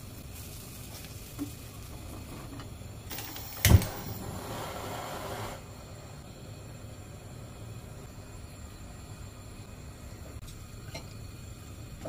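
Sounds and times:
hiss: 0:03.0 - 0:06.6.

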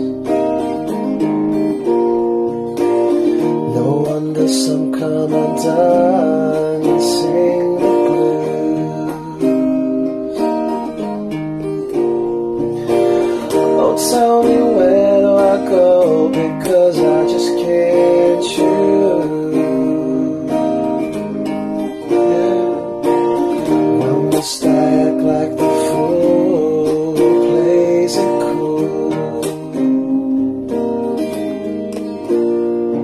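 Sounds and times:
acoustic guitar strummed and picked: 0:00.0 - 0:33.0.

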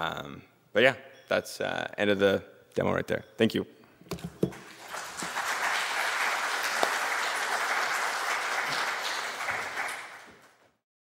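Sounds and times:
audience applauding: 0:04.5 - 0:10.7.

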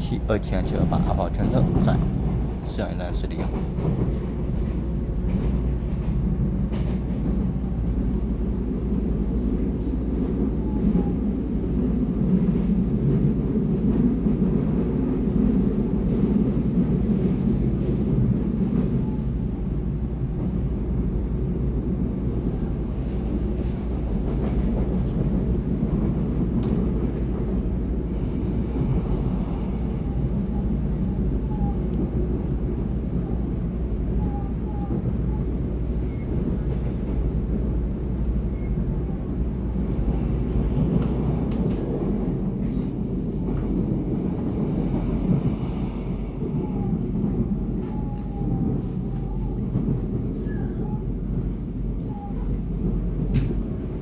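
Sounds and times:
train wheels rumbling on rails: 0:00.0 - 0:54.0.

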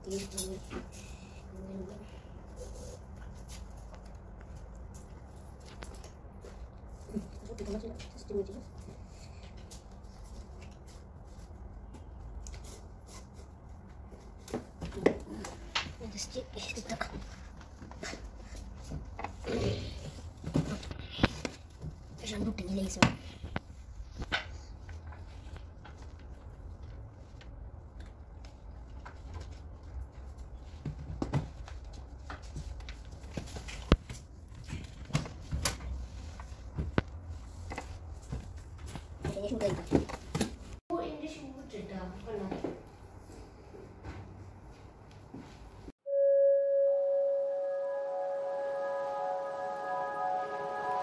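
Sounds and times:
low hum: 0:46.1 - 0:51.0.

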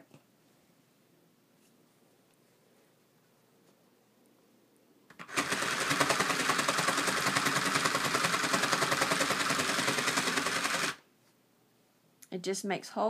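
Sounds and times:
toy sewing machine needles chattering: 0:05.1 - 0:11.0.

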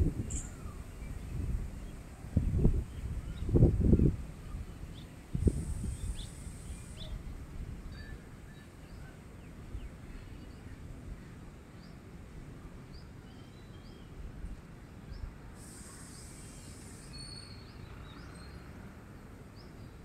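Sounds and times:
low rumble background noise: 0:00.0 - 0:20.0
small birds chirping: 0:00.2 - 0:07.2, 0:15.1 - 0:18.7.

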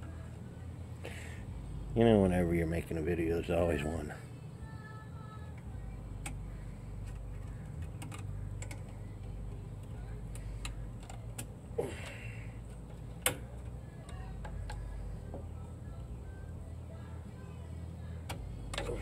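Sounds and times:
steady low hum: 0:00.0 - 0:19.0
metallic clicks of brake parts: 0:07.0 - 0:14.9.

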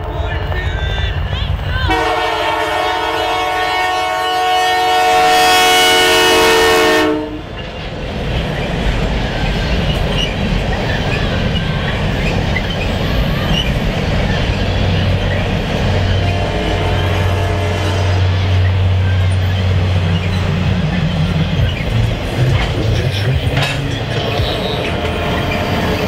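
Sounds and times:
train wheels rumbling on rails: 0:00.0 - 0:26.0
locomotive air horn blast: 0:01.9 - 0:07.5, 0:16.2 - 0:19.0, 0:24.4 - 0:26.0.

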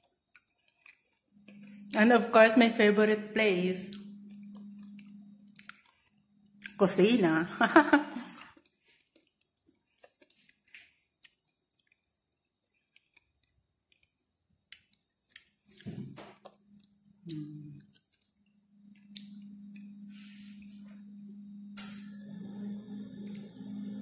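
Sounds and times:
soft chewing: 0:00.0 - 0:02.0, 0:03.9 - 0:06.8, 0:08.3 - 0:21.3
low hum: 0:01.3 - 0:08.4, 0:15.8 - 0:24.0
lip and tongue clicks: 0:03.9 - 0:06.0, 0:14.7 - 0:15.6.

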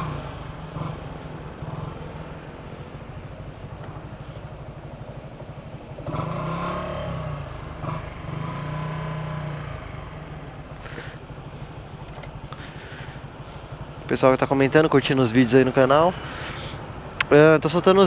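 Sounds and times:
motorcycle engine idling: 0:00.0 - 0:18.0
engine note rising: 0:05.2 - 0:10.6.

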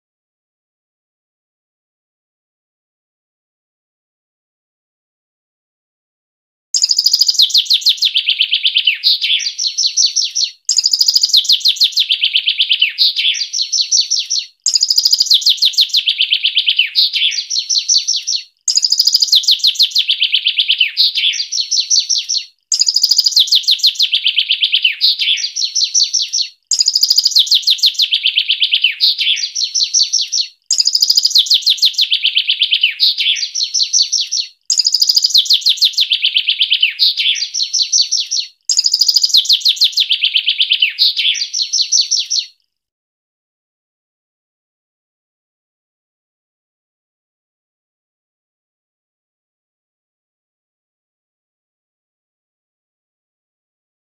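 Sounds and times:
songbird singing rapidly: 0:06.8 - 0:42.6.

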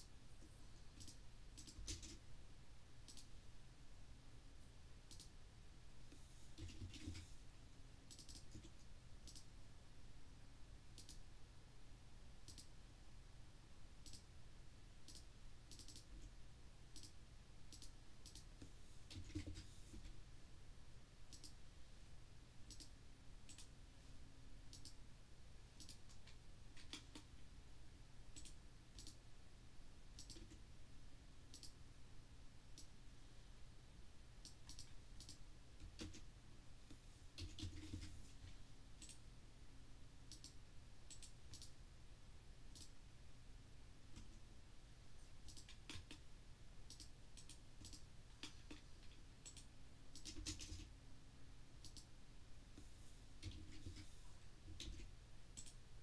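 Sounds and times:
faint low hum: 0:00.0 - 0:56.0
computer mouse clicking: 0:00.8 - 0:02.2, 0:03.1 - 0:03.3, 0:05.1 - 0:05.3, 0:06.1 - 0:07.3, 0:08.1 - 0:09.5, 0:11.0 - 0:11.2, 0:12.4 - 0:12.7, 0:14.0 - 0:14.3, 0:15.0 - 0:16.3, 0:16.9 - 0:20.1, 0:21.3 - 0:21.6, 0:22.7 - 0:22.9, 0:23.5 - 0:23.7, 0:24.7 - 0:25.0, 0:25.8 - 0:27.4, 0:28.4 - 0:29.2, 0:30.2 - 0:30.6, 0:31.5 - 0:31.8, 0:34.4 - 0:36.3, 0:36.9 - 0:38.2, 0:39.0 - 0:39.2, 0:40.3 - 0:41.8, 0:42.7 - 0:43.0, 0:45.4 - 0:46.2, 0:46.9 - 0:50.9, 0:51.8 - 0:52.1, 0:52.8 - 0:55.8.

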